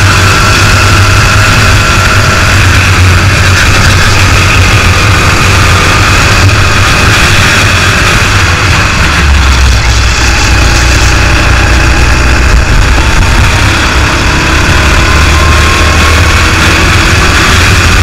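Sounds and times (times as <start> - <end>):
kart engine running at speed: 0.0 - 18.0.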